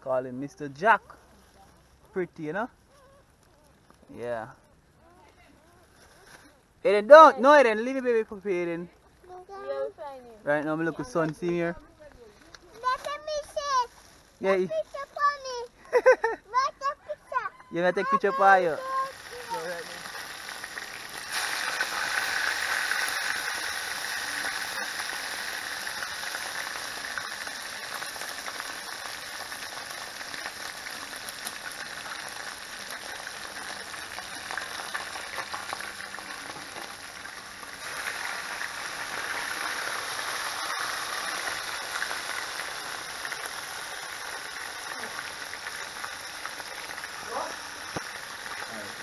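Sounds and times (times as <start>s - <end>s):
fish frying in hot oil: 18.2s - 49.0s.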